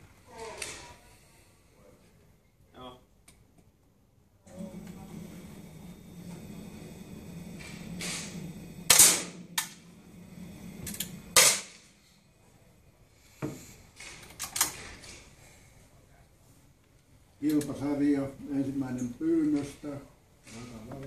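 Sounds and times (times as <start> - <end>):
low steady hum: 4.5 - 13.2
air rifle shots: 8.9 - 9.8, 11.4 - 11.8.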